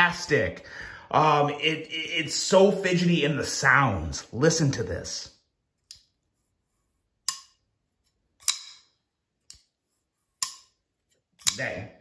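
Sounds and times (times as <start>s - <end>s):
folding knife metallic clicks: 8.4s - 8.9s.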